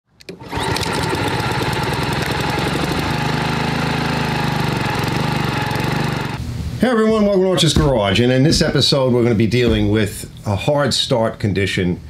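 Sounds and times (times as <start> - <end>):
lawn mower engine running: 0.2 - 6.4.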